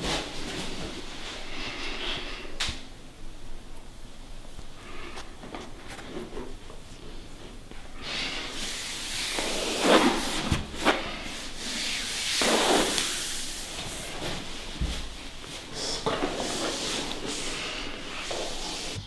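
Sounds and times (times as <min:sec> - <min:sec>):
hands rubbing skin: 0:11.7 - 0:14.5.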